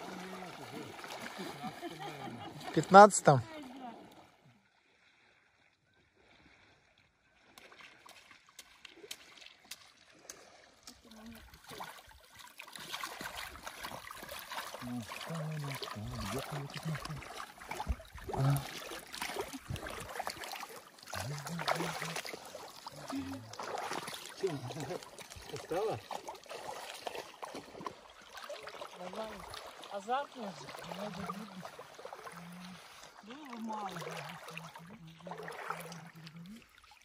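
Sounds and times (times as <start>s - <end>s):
water trickling off fishing net: 0.0s - 37.0s.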